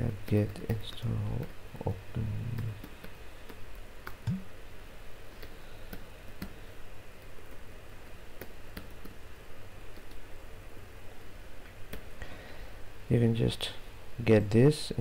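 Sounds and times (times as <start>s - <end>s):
low hum: 4.0s - 4.6s.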